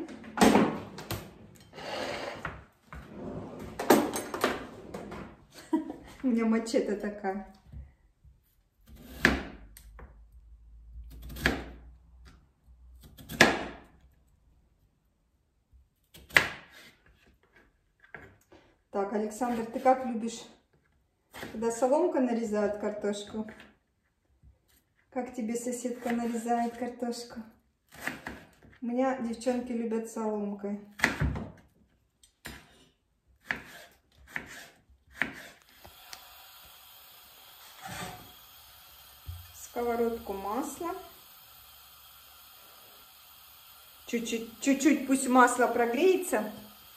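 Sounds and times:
knife chopping potatoes on board: 8.8s - 10.0s, 11.1s - 11.8s, 13.0s - 13.9s, 16.0s - 17.2s, 27.9s - 28.7s, 30.9s - 31.6s, 33.4s - 35.9s.

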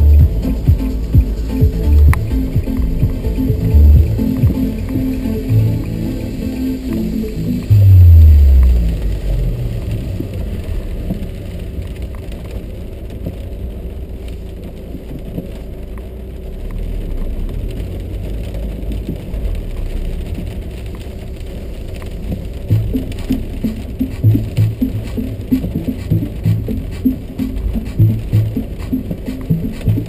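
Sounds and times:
loud low falling tone: 0.0s - 11.8s
car engine and road rumble: 0.0s - 30.0s
rain pattering on car: 0.0s - 30.0s.

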